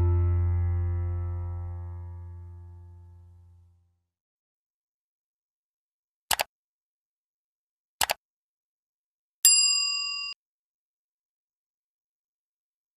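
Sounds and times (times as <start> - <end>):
mouse double clicks: 8.0 - 8.2
bright bell chime: 9.5 - 10.4.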